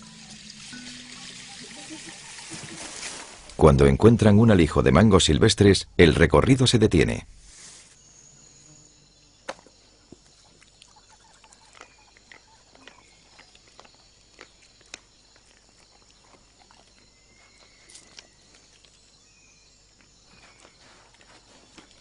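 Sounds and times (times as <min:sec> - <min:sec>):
forest insects droning: 0:00.0 - 0:22.0
crunching and snapping of chewing: 0:09.5 - 0:19.3, 0:19.9 - 0:22.0.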